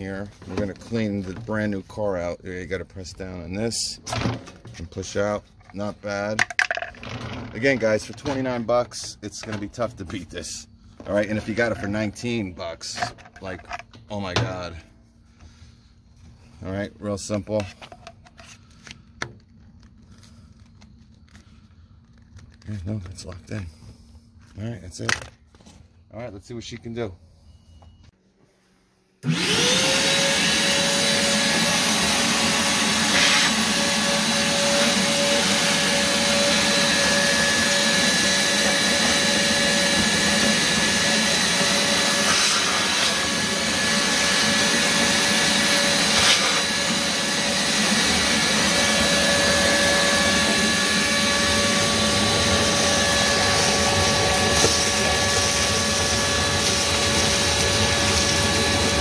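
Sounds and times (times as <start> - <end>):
shop vacuum motor whine: 29.2 - 59.0.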